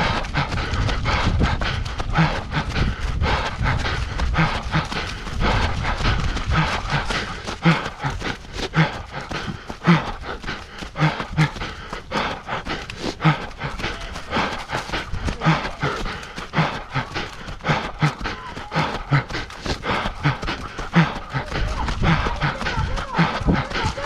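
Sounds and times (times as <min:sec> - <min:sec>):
panting breaths: 0:00.0 - 0:24.0
running footfalls: 0:00.0 - 0:24.0.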